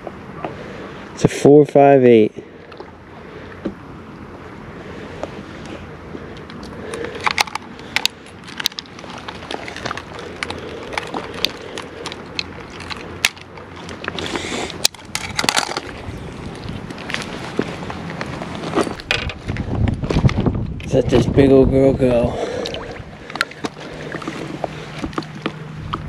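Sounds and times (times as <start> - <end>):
fishing gear clicking: 6.4 - 20.4
footsteps crunching on gravel: 15.4 - 20.3.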